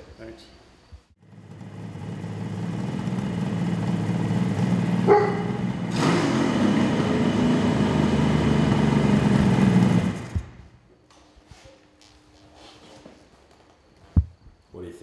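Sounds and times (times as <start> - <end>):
motorcycle engine revving: 1.2 - 10.8.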